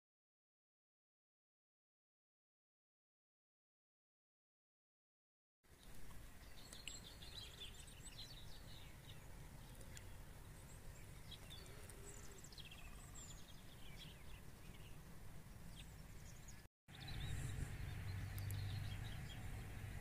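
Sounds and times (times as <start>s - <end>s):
small birds chirping: 5.7s - 20.0s.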